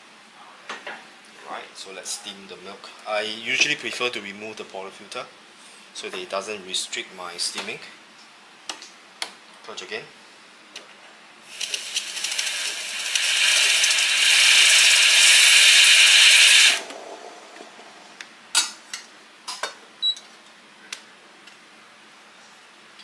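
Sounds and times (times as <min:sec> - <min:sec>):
steam wand hissing: 0:11.5 - 0:17.8.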